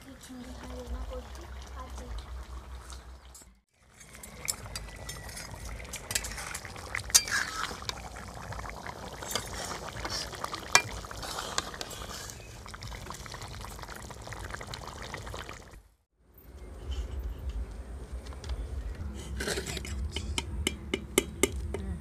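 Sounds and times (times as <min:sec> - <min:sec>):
thick curry bubbling: 0:00.0 - 0:15.8
thick liquid sloshing: 0:00.6 - 0:15.8
metal spatula scraping wok: 0:03.8 - 0:08.0, 0:09.2 - 0:12.5.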